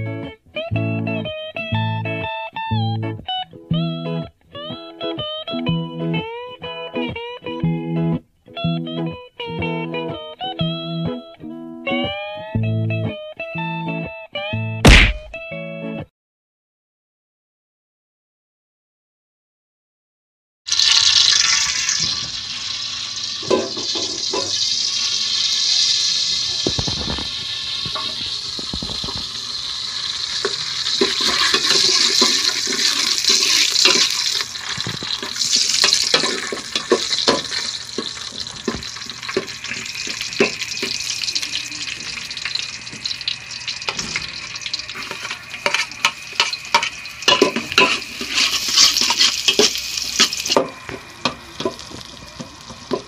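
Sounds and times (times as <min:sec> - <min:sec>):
garlic sizzling in oil: 0:20.7 - 0:53.0
metal spoon scraping pot: 0:30.3 - 0:41.1, 0:44.9 - 0:50.7.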